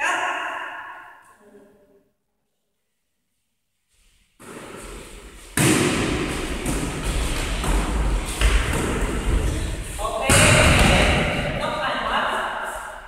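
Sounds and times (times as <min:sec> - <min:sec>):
players moving on wooden floor: 0:03.9 - 0:10.2
volleyball thuds in a hall: 0:04.3 - 0:13.0.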